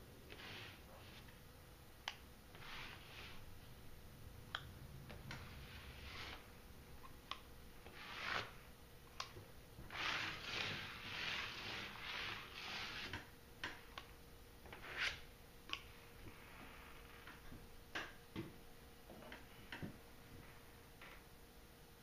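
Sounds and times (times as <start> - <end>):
sponge scrubbing: 2.6 - 3.5, 5.5 - 6.5, 7.9 - 8.6, 9.9 - 13.2.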